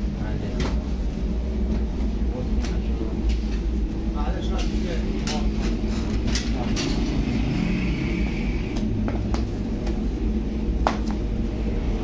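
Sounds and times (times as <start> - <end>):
low machine rumble: 0.0 - 12.0.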